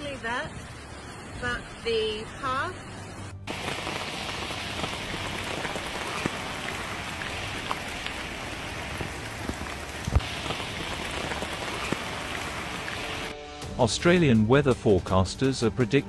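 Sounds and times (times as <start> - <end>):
water rushing: 3.5 - 13.4.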